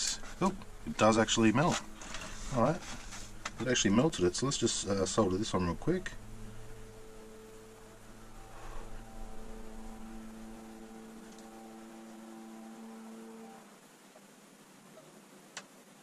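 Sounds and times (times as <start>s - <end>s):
low electrical hum: 0.0s - 16.0s
soft rustle: 1.6s - 4.0s.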